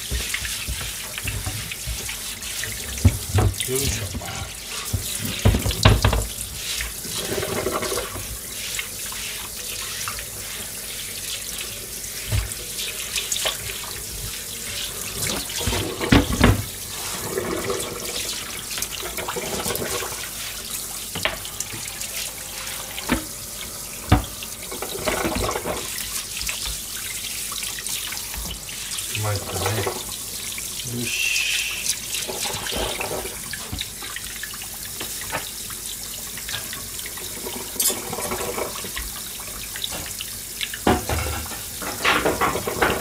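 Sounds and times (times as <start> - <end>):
scrubbing cutting boards: 0.0 - 10.8
tap running into steel sink: 24.1 - 25.8.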